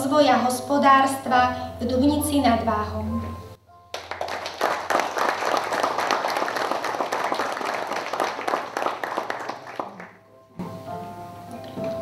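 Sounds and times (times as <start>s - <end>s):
audience clapping: 3.9s - 10.3s.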